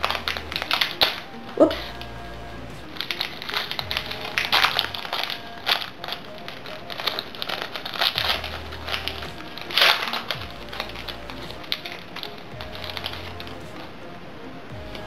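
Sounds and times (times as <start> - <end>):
foil wrapper tearing and crinkling: 2.8 - 13.8.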